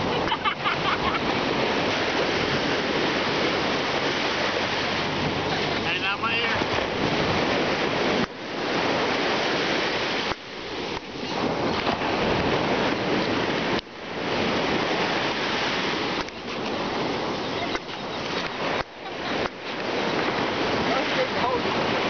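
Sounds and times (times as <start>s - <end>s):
ocean surf: 0.0s - 22.0s
wind: 0.0s - 22.0s.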